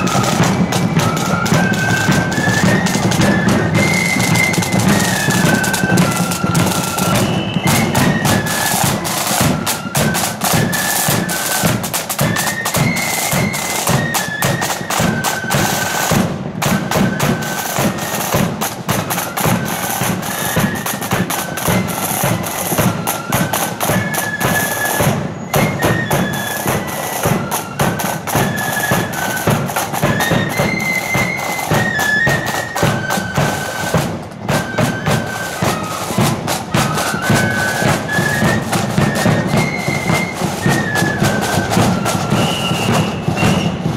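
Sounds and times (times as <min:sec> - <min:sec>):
flutes playing in unison: 0:00.0 - 0:43.9
side drums: 0:00.0 - 0:43.9.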